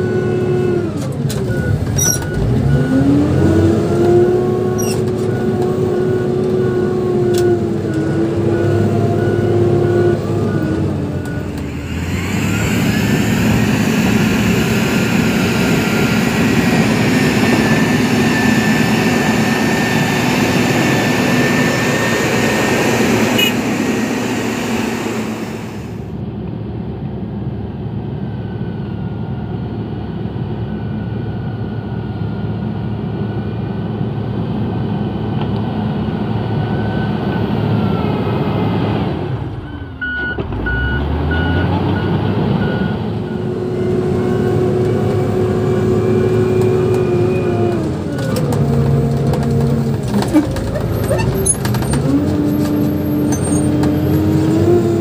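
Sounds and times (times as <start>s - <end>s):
diesel engine running: 0.0s - 55.0s
steady high whine: 11.4s - 26.1s.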